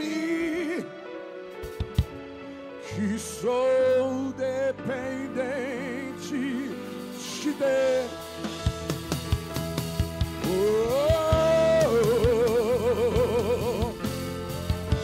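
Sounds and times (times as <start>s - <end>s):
person singing with vibrato: 2.8s - 8.5s, 10.4s - 14.3s.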